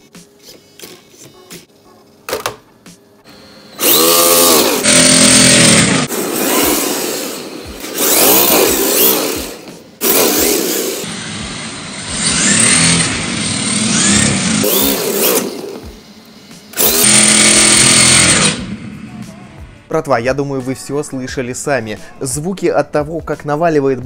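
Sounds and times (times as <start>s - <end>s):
electric motor whine: 3.3s - 19.2s.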